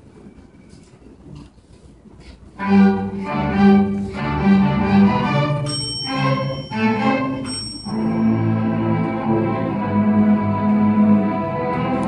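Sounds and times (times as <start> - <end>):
string orchestra playing: 2.6 - 12.0
desk bell ringing: 5.6 - 8.5.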